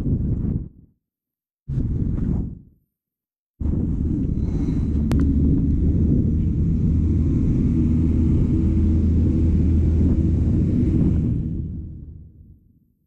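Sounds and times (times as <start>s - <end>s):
low vehicle rumble: 3.6s - 12.9s.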